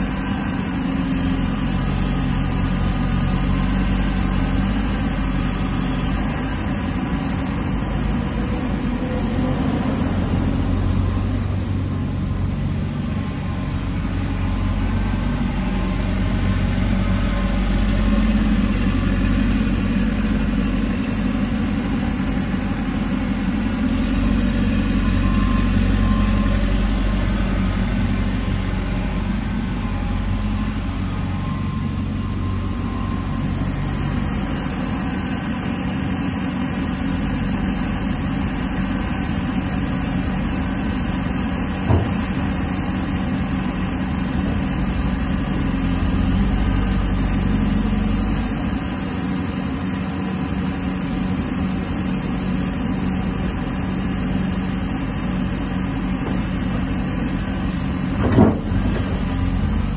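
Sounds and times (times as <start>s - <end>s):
excavator diesel engine running: 0.0s - 59.9s
short knock: 41.8s - 42.3s.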